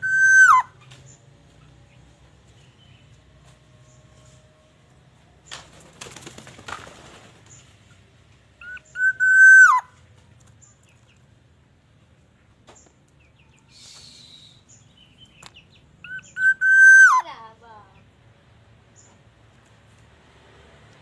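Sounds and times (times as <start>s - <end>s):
bird whistling call: 0.0s - 0.7s, 8.6s - 9.9s, 13.7s - 14.7s, 16.0s - 17.3s.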